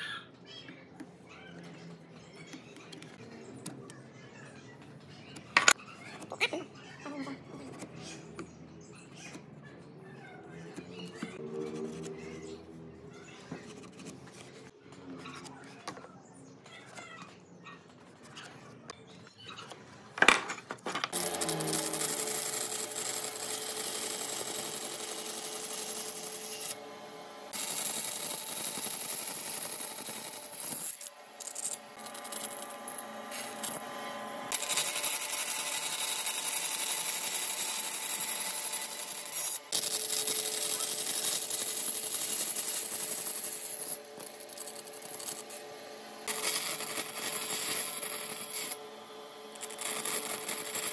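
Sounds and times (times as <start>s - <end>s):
band saw cutting wood: 10.6s - 14.7s, 21.1s - 50.9s.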